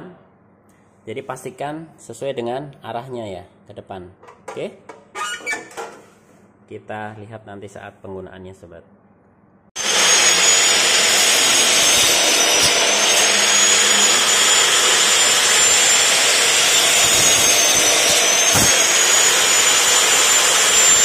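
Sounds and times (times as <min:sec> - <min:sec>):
cut-off saw cutting bone: 0:11.2 - 0:21.0.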